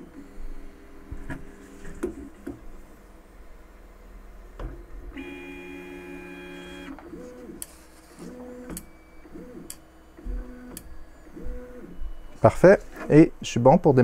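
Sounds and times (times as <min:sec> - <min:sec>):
stepper motors whining: 0:05.1 - 0:13.5.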